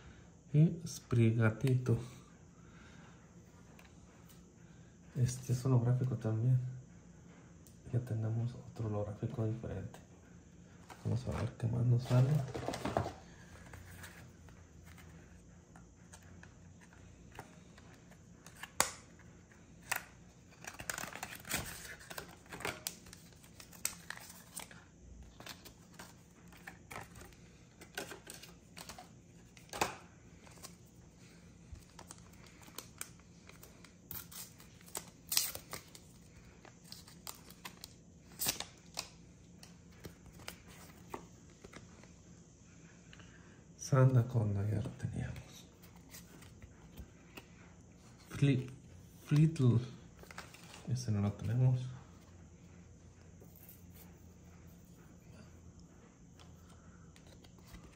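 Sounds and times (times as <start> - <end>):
cards clicking and tapping: 16.1 - 30.7.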